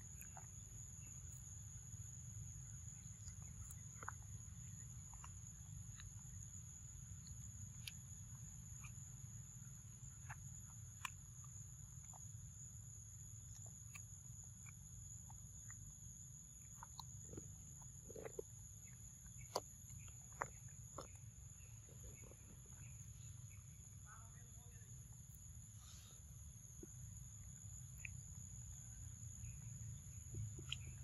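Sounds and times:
monkey chewing fruit: 0.0s - 24.0s.

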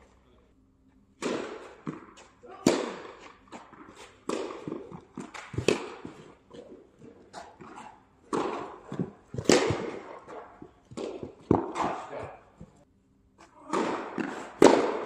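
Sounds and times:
racket hitting tennis ball: 1.1s - 12.8s, 13.4s - 15.0s
ball bouncing: 1.2s - 12.8s.

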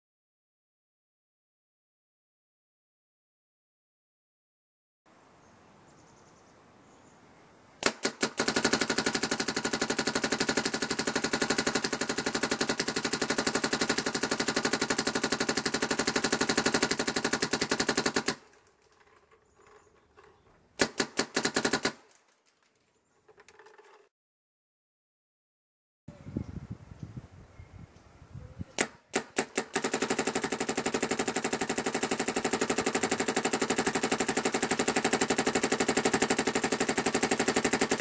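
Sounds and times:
paintball marker rapid shots: 7.8s - 22.2s, 28.8s - 38.0s.

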